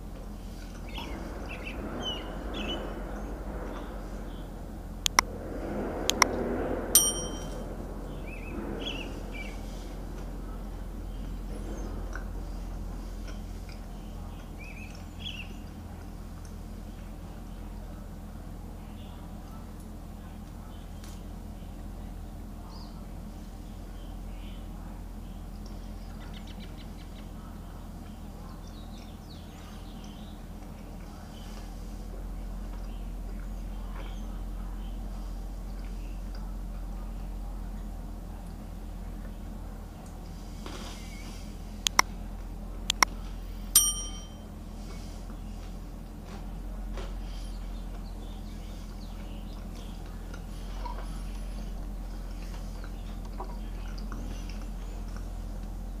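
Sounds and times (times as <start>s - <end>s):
steady low hum: 0.0s - 56.0s
bird chirps: 0.6s - 4.6s, 7.0s - 10.1s
bell ding: 7.0s - 7.6s, 43.8s - 44.5s.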